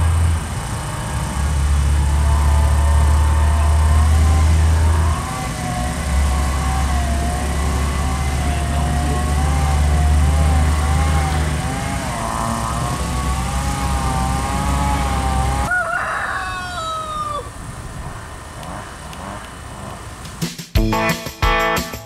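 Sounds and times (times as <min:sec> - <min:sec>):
rooster crowing: 0:15.0 - 0:17.7.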